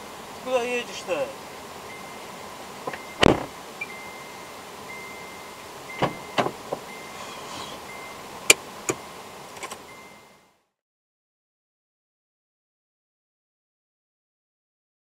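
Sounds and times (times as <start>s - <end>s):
steady car hum: 0.0s - 10.8s
car door handle and latch clicks: 2.8s - 3.5s, 6.0s - 6.9s.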